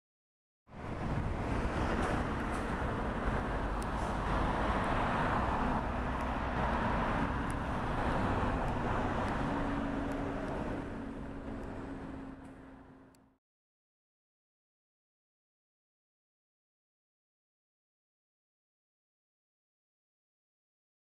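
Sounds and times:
low engine hum: 0.7s - 13.4s
road traffic passing cars: 0.7s - 13.4s.

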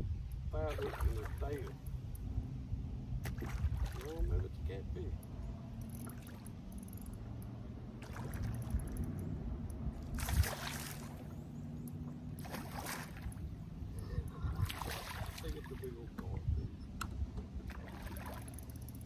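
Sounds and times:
steady low hum: 0.0s - 19.0s
fish splashing at the surface: 3.2s - 4.2s, 8.0s - 8.6s, 10.1s - 11.3s, 12.4s - 13.4s, 14.6s - 15.8s, 17.7s - 18.5s.

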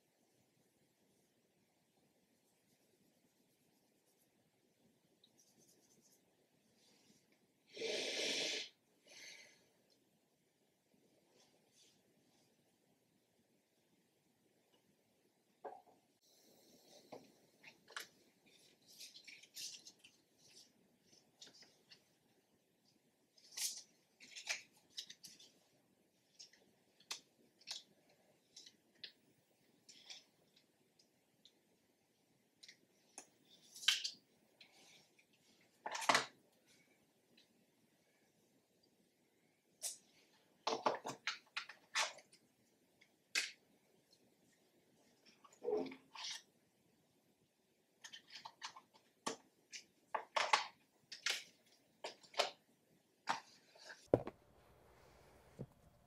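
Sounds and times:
plastic clicks and paper crinkles: 17.6s - 22.1s, 23.4s - 25.6s, 26.3s - 29.2s.

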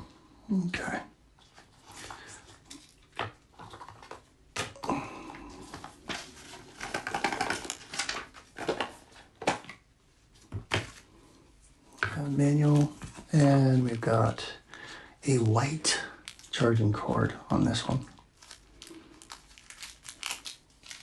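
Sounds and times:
cardboard rustling and scraping: 5.6s - 9.6s.

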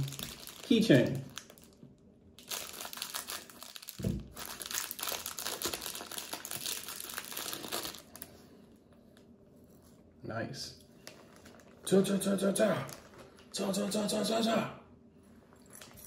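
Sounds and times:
plastic bag crinkling: 0.0s - 8.4s, 11.0s - 11.9s, 12.8s - 13.5s.

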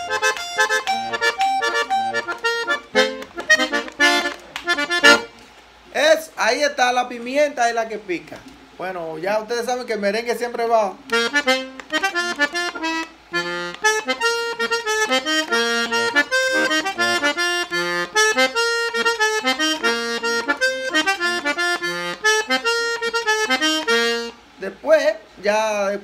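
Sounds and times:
button accordion melody: 0.0s - 5.4s, 11.1s - 24.4s.

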